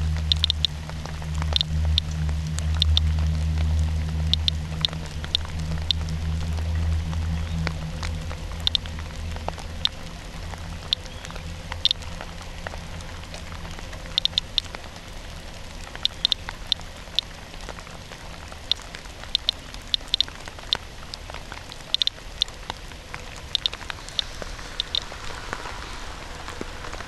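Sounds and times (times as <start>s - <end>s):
geiger counter clicking: 0.0s - 3.1s, 4.2s - 6.1s, 8.6s - 9.0s, 9.8s - 10.0s, 10.8s - 12.1s, 14.0s - 14.8s, 16.0s - 17.3s, 18.7s - 20.8s, 21.7s - 22.8s, 23.4s - 25.1s
rain pattering: 0.0s - 27.0s.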